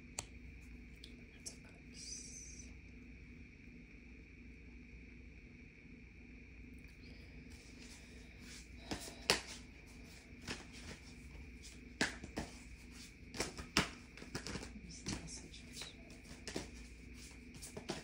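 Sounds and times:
cards being shuffled: 7.6s - 18.0s.

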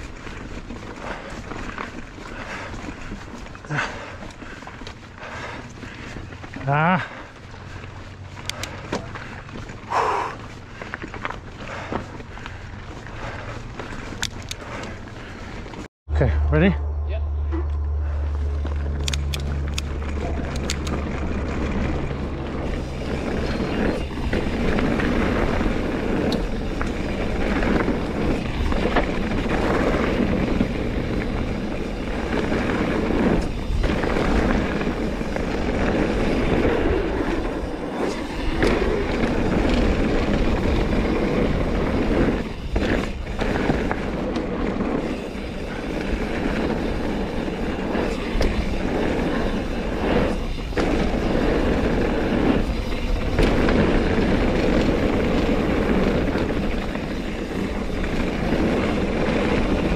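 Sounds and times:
bike tyre and rattle noise: 0.0s - 15.9s, 17.4s - 59.9s
wind rushing over microphone: 16.2s - 59.9s.

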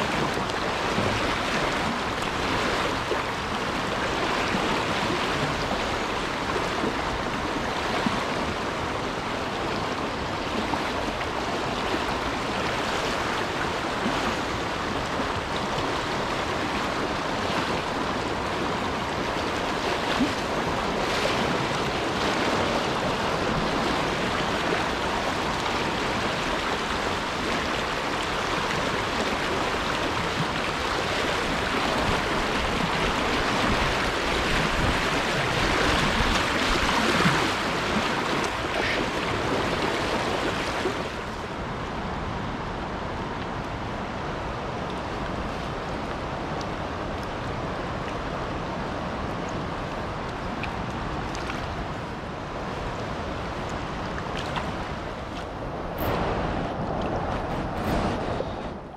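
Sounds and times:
river current rushing and splashing: 0.0s - 58.9s.

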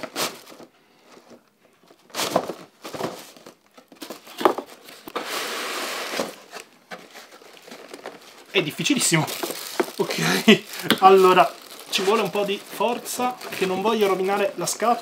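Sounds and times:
cardboard box scraping: 5.0s - 7.4s.

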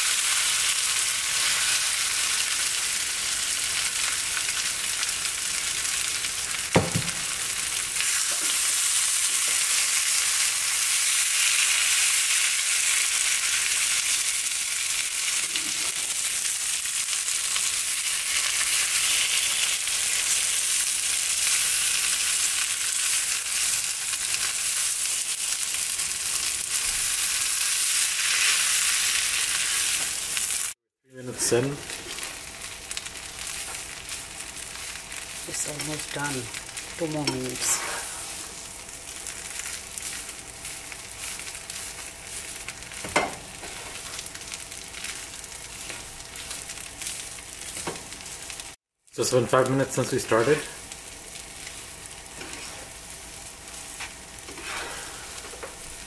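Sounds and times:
potatoes sizzling in a pan: 0.0s - 56.0s
sharp knock: 6.8s - 7.2s.

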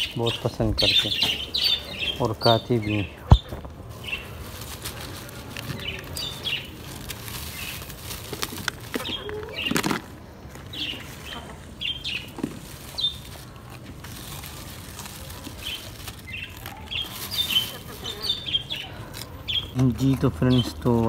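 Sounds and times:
bird chirps: 0.0s - 4.3s, 15.6s - 20.9s
plastic bag crinkling: 3.4s - 21.0s.

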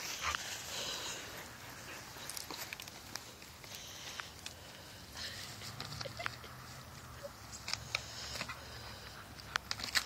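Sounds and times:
paws scuffing and ticking: 0.0s - 4.6s.

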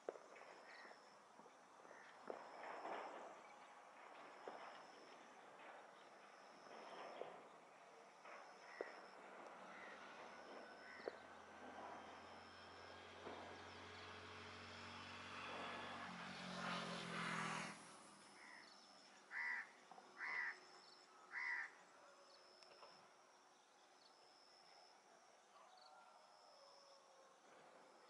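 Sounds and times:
distant engine drone: 0.1s - 20.6s.

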